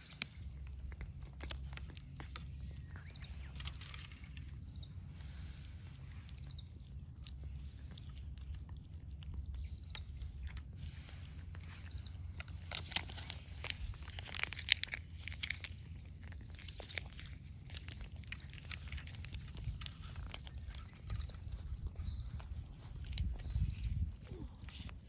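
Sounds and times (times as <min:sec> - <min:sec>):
cat crunching food: 0:00.0 - 0:25.0.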